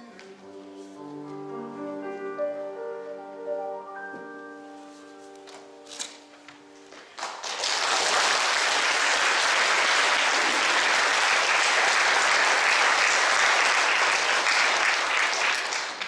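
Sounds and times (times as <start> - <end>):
piano notes: 0.0 - 7.2
audience applause: 7.1 - 16.0.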